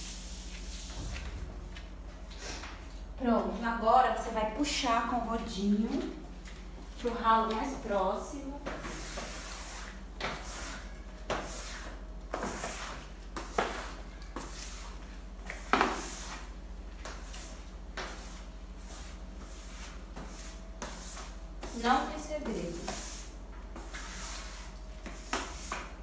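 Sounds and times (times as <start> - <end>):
squeegee scraping a wet floor: 8.6 - 26.0.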